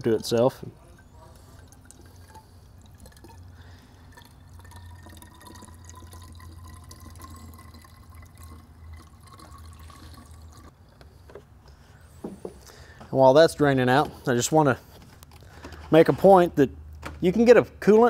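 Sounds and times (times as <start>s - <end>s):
water trickling and dripping: 0.0s - 11.0s
low steady hum: 0.0s - 15.9s.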